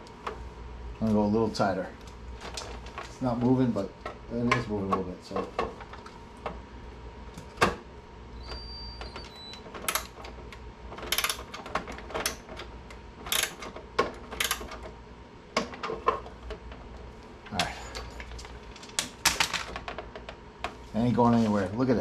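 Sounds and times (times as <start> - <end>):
short high squeak: 8.4 - 9.6.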